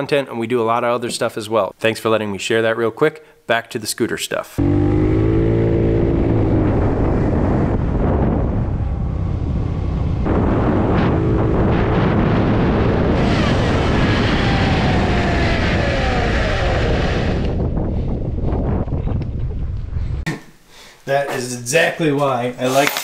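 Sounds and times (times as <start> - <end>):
scooter engine running: 4.6 - 17.6.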